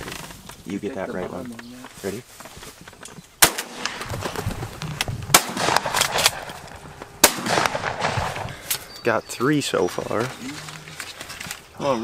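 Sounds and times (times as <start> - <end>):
gunshots: 3.4 - 4.5, 5.3 - 8.9.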